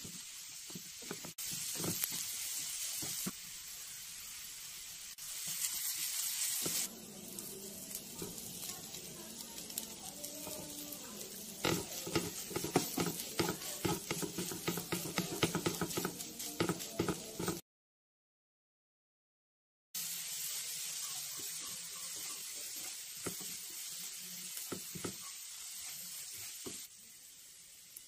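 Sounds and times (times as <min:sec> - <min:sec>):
faint sizzle: 0:00.0 - 0:17.6, 0:20.0 - 0:28.0
spatula scraping frying pan: 0:05.4 - 0:17.6.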